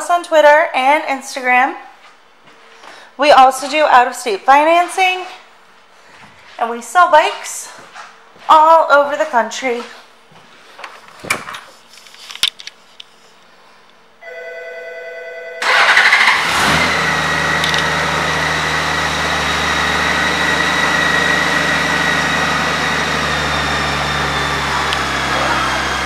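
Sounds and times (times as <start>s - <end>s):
starter motor whirring: 15.6s - 26.0s.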